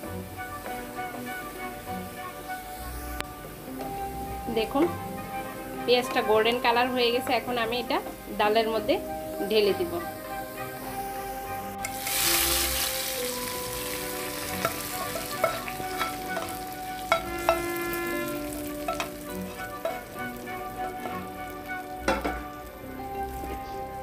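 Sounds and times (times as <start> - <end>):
hot oil sizzling: 0.0 - 24.0
wooden spatula scraping pan: 12.0 - 22.6.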